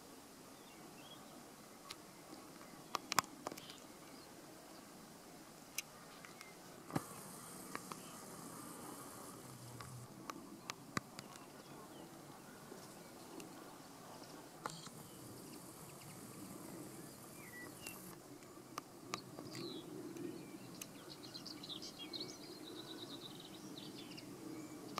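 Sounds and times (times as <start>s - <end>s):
faint low hum: 0.0s - 24.9s
sharp clicks: 5.7s - 11.5s, 14.6s - 16.6s
skylark singing: 6.1s - 12.1s, 14.6s - 18.2s.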